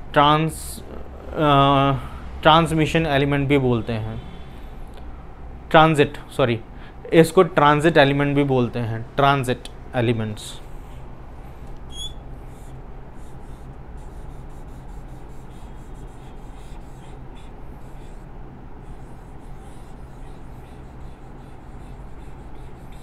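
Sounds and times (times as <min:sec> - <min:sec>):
steady low hum: 0:00.0 - 0:23.0
marker writing on whiteboard: 0:11.9 - 0:23.0.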